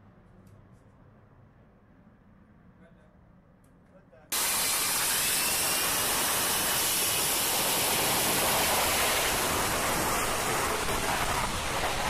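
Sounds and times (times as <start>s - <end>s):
loud jet noise: 4.3s - 12.0s
faint high whine: 4.4s - 12.0s.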